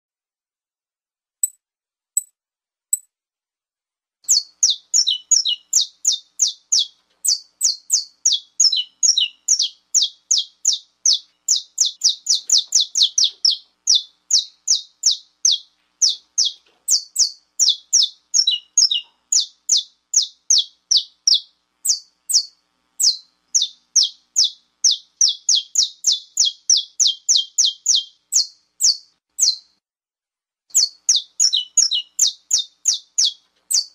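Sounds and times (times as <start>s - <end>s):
faint bird ticks: 4.3s - 29.6s.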